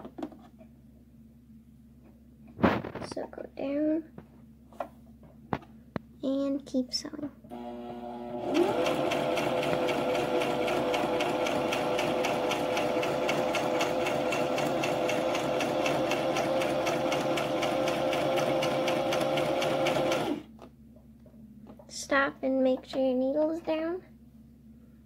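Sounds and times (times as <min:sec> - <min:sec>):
sewing machine running: 0:07.5 - 0:20.5.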